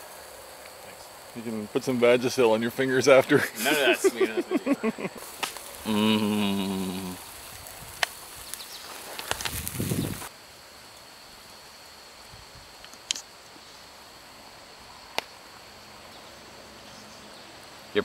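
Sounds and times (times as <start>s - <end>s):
steaks sizzling on a grill: 0.0s - 4.4s, 5.2s - 10.3s.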